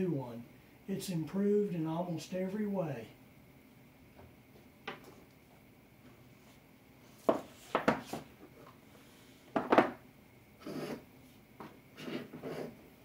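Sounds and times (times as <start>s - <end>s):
hard objects knocking and clattering: 7.3s - 8.3s, 9.5s - 10.0s.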